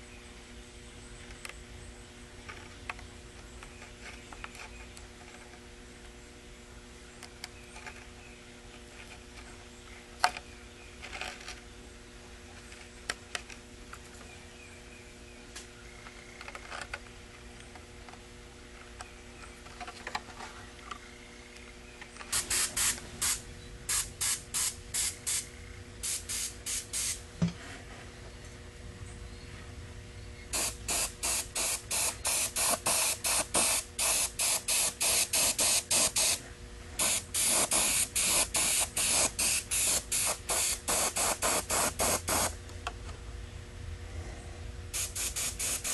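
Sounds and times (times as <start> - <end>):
airbrush hissing bursts: 22.3 - 27.2, 30.5 - 36.4, 37.0 - 42.5, 45.0 - 45.9.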